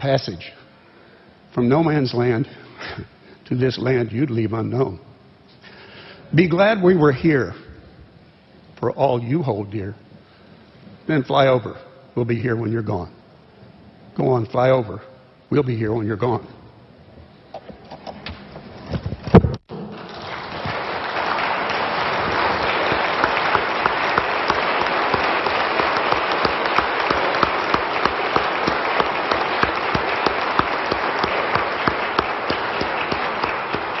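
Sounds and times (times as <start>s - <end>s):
crowd applauding: 19.7s - 34.0s.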